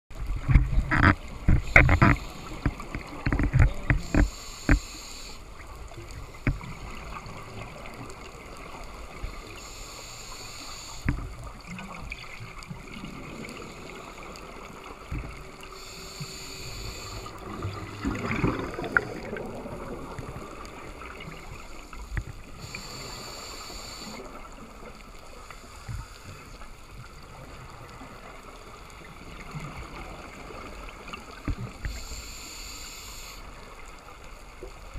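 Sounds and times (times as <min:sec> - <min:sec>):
underwater knocks and clicks: 0:00.2 - 0:04.9, 0:06.1 - 0:07.2, 0:11.0 - 0:12.2, 0:15.0 - 0:15.5, 0:22.1 - 0:22.4, 0:31.1 - 0:32.0
scuba regulator hissing: 0:04.0 - 0:05.4, 0:09.6 - 0:11.1, 0:15.7 - 0:17.3, 0:22.6 - 0:24.2, 0:31.9 - 0:33.4
exhaled bubbles rumbling: 0:17.2 - 0:22.3.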